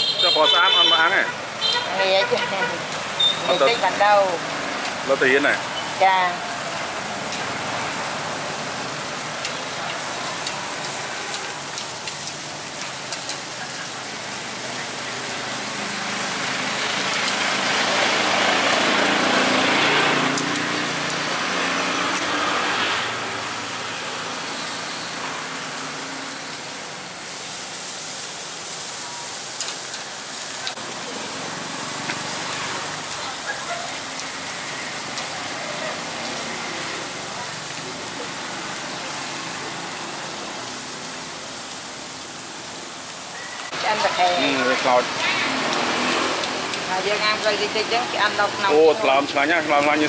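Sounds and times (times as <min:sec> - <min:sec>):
steady street hiss: 0:00.0 - 0:50.0
motor vehicle passing: 0:14.0 - 0:26.6, 0:43.7 - 0:50.0.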